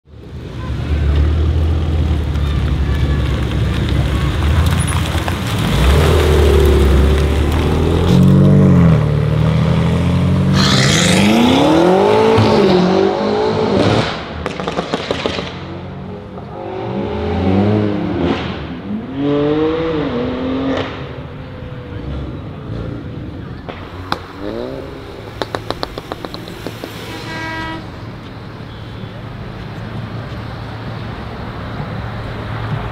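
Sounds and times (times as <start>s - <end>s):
car engine accelerating: 0.9s - 27.1s
exhaust pops crackling: 23.6s - 27.1s.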